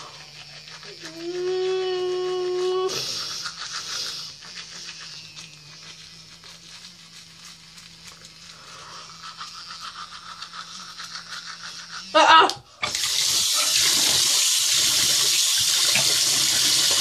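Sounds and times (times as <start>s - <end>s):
toothbrush scrubbing teeth: 0.0s - 17.0s
person humming: 0.8s - 3.3s, 12.0s - 12.7s.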